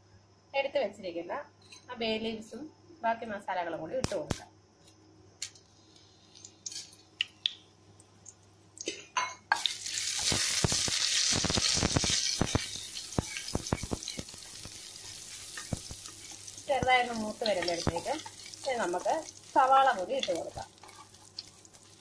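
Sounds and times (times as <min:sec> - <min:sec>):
spices sizzling in hot oil: 0:05.4 - 0:07.6, 0:08.2 - 0:22.0
wooden spatula scraping pot: 0:12.0 - 0:21.6.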